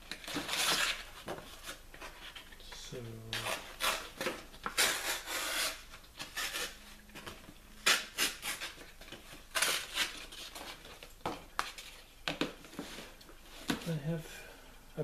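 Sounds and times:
sharp scrape: 4.8s - 6.8s.

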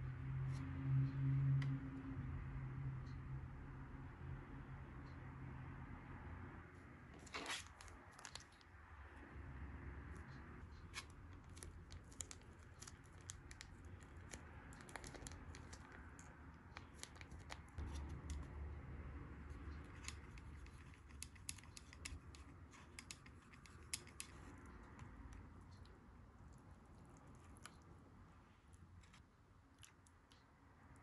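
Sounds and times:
plastic packet crinkling and tearing: 11.0s - 17.8s.

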